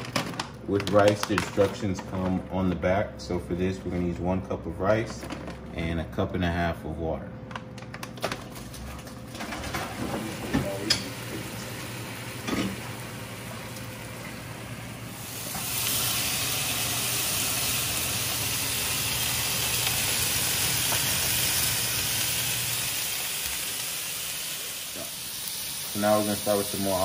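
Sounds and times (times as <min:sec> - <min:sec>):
chicken sizzling in a pan: 0:10.2 - 0:27.0.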